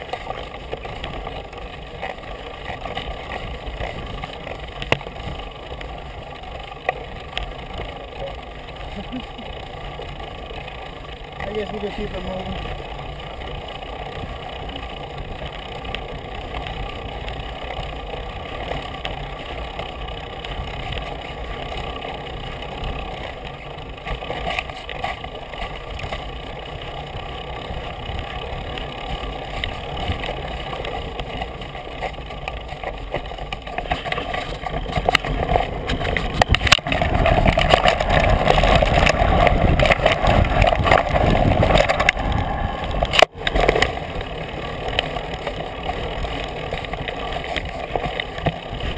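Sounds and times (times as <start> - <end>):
bike rattles and knocks: 0.0 - 48.9
tyre rumble on dirt trail: 0.0 - 48.9
wind noise on microphone: 27.0 - 48.9.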